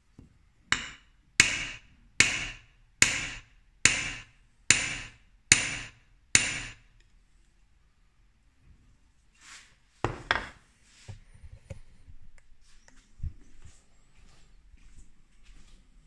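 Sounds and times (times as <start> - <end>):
hammer tapping metal blade: 0.8 - 5.8.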